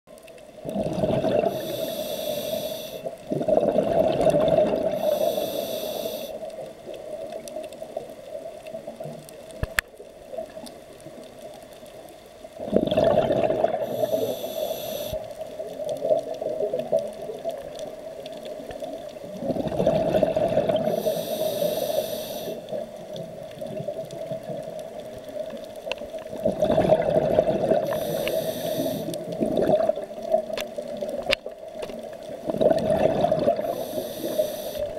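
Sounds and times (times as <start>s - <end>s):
exhaled bubbles rushing: 0.6s - 1.7s, 3.3s - 5.1s, 12.6s - 14.2s, 19.4s - 21.0s, 26.3s - 28.1s, 29.2s - 30.5s, 32.4s - 33.8s
regulator hissing inhale: 1.4s - 3.2s, 4.9s - 6.5s, 13.8s - 15.4s, 20.8s - 22.8s, 27.8s - 29.3s, 33.6s - 34.9s
steady hum: 13.9s - 15.2s.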